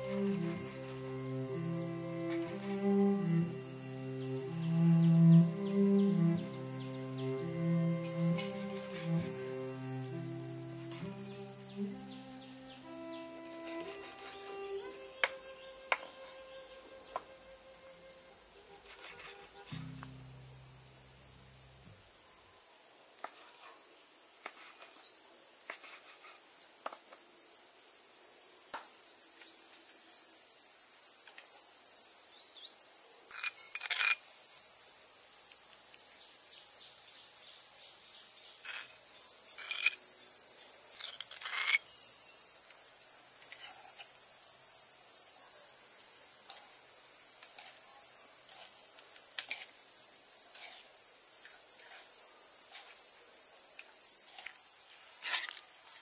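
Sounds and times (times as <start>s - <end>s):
insects chirring: 0.0s - 56.0s.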